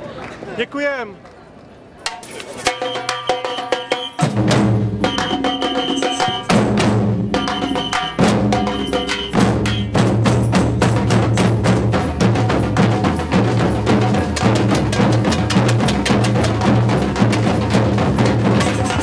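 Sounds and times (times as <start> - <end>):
djembes: 2.1 - 19.0
snare drums: 2.1 - 19.0
bass drums struck with mallets: 6.3 - 19.0.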